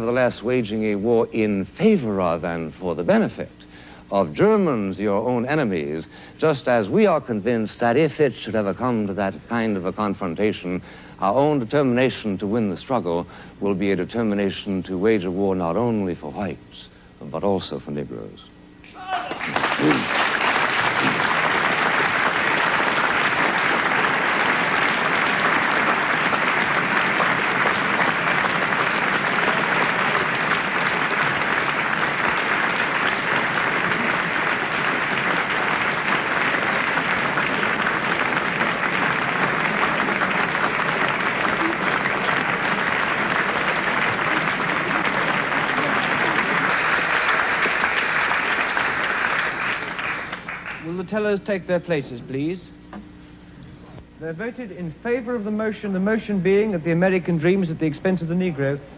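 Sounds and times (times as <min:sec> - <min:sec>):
audience applauding: 0:19.0 - 0:51.1.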